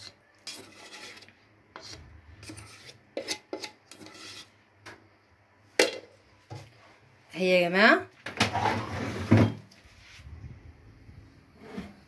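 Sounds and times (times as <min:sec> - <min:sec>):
spatula scraping a mixing bowl: 0:00.0 - 0:04.6.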